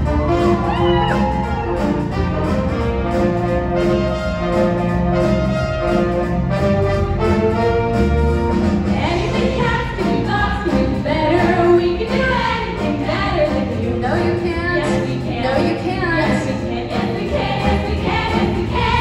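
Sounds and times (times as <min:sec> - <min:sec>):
brass accompaniment holding notes: 0:00.0 - 0:11.1
women's chorus singing: 0:08.9 - 0:19.0.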